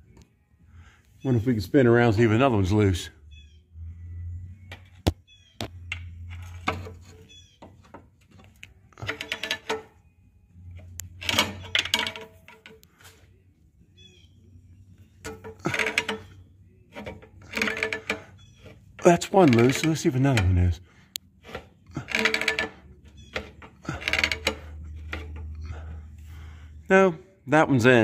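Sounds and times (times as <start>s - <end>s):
pry bar scraping metal: 5.6s - 10.0s, 10.7s - 13.2s, 15.0s - 20.8s, 21.4s - 26.0s.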